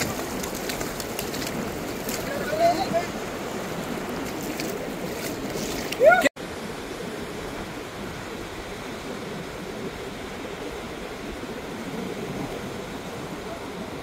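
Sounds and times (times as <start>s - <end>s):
ocean surf breaking: 0.0s - 14.0s
wind noise on microphone: 0.0s - 14.0s.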